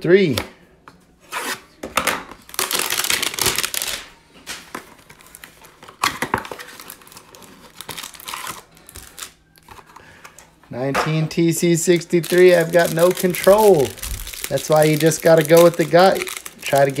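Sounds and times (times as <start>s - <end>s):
plastic wrap crinkling: 2.4s - 9.9s, 11.8s - 17.0s.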